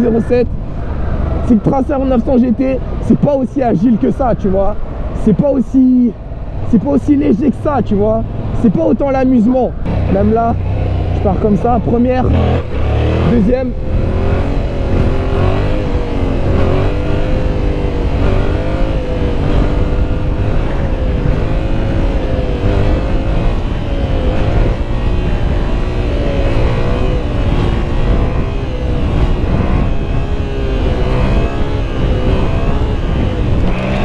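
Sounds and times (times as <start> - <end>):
wind rumble on microphone: 0.0 - 34.0
motorcycle engine running hard: 9.7 - 34.0.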